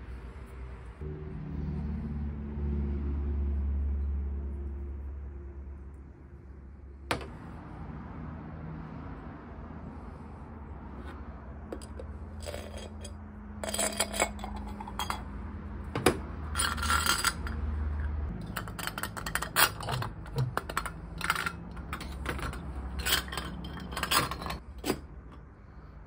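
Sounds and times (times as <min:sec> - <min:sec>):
metal clinks and scrapes: 0:11.0 - 0:15.4, 0:16.4 - 0:25.5.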